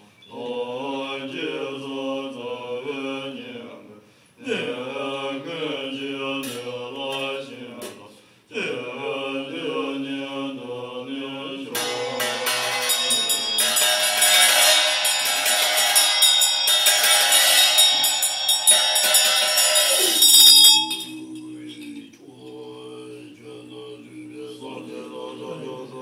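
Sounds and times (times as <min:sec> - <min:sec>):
monks chanting together: 0:00.3 - 0:26.0
hand bells rung rapidly: 0:11.8 - 0:22.0.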